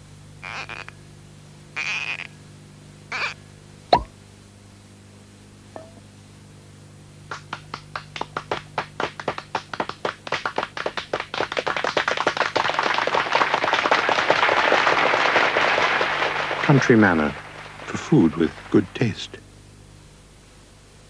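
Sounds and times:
people clapping: 7.3s - 19.4s.

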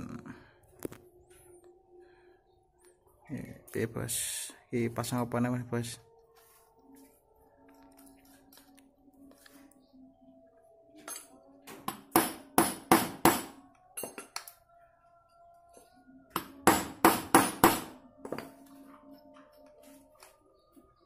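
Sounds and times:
hammer striking metal: 11.1s - 14.5s, 16.3s - 18.5s.

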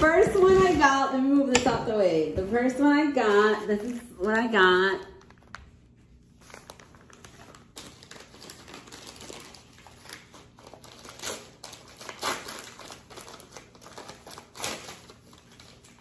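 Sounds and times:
packaging crinkling and rustling: 3.2s - 16.0s.

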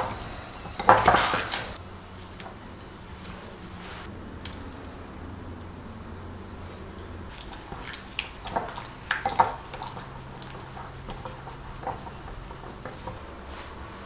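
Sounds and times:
dripping: 0.0s - 1.8s, 4.4s - 5.1s, 7.2s - 14.0s
wet squishing of marinade: 7.3s - 13.7s.

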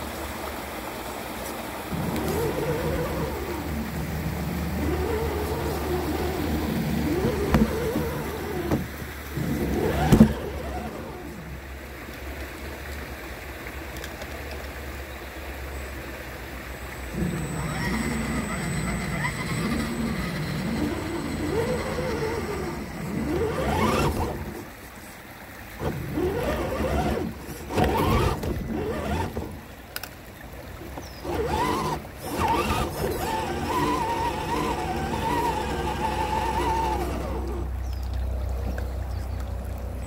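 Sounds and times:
electric motors whining: 1.9s - 11.6s, 16.4s - 24.8s, 25.7s - 30.1s, 30.7s - 38.1s.

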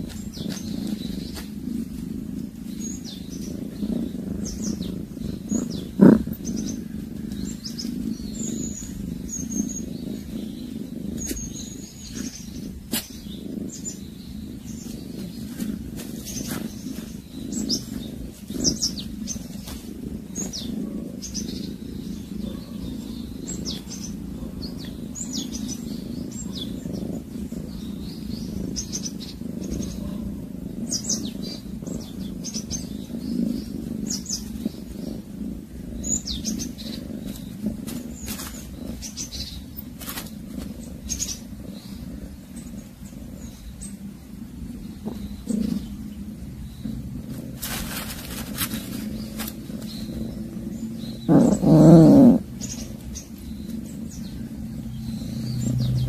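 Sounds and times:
small birds chirping: 0.0s - 56.0s
steady low rumble: 0.0s - 56.0s.

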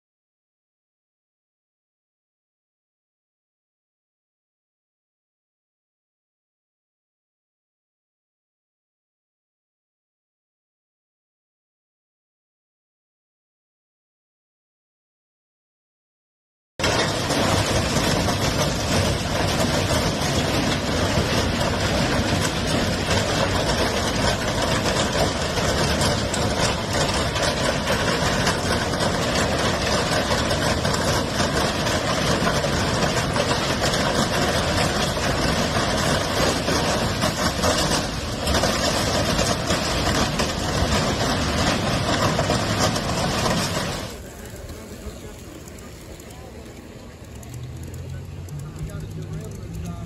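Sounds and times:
freight train rumbling past: 16.8s - 50.0s.

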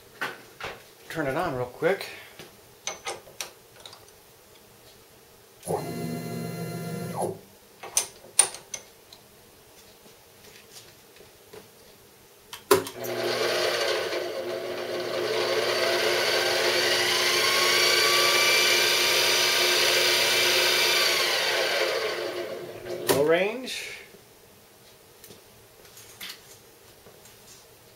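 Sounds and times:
mill spindle motor whine: 5.6s - 7.4s, 13.0s - 22.9s.

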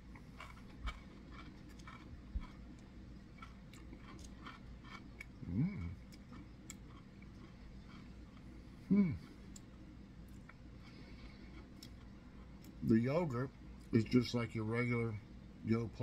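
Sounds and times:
person chewing crunchy food: 0.0s - 12.8s
person humming: 5.4s - 6.0s, 8.9s - 9.4s.

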